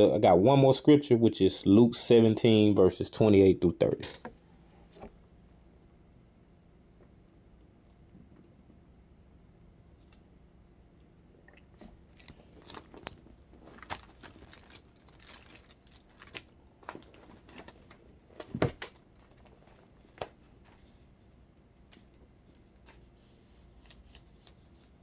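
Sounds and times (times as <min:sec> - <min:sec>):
rustling handling noise: 0:11.8 - 0:25.0.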